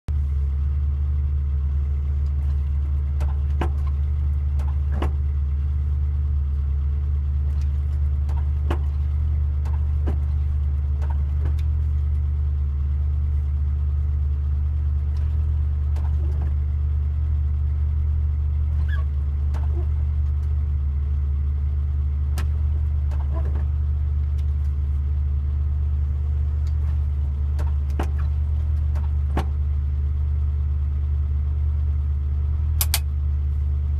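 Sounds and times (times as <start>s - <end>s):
car engine idling: 0.1s - 33.9s
dashboard button clicks: 32.8s - 33.0s.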